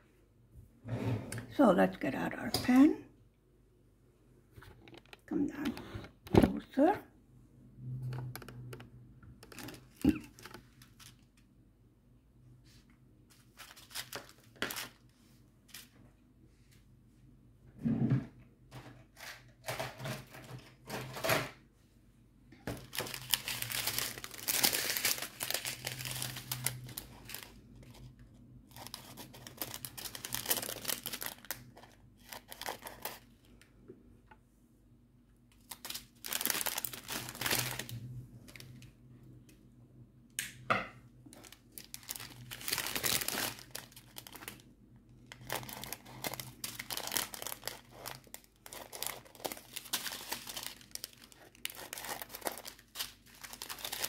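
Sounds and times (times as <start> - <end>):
plastic bags crinkling: 9.4 - 11.2, 13.3 - 15.0, 22.7 - 33.6, 35.6 - 38.8, 41.3 - 54.0.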